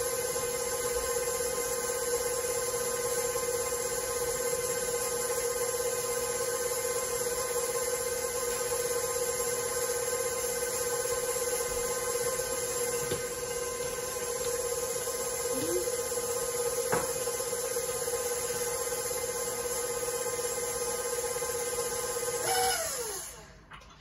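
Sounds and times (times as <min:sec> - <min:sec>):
stand mixer motor whining: 0:00.0 - 0:23.6.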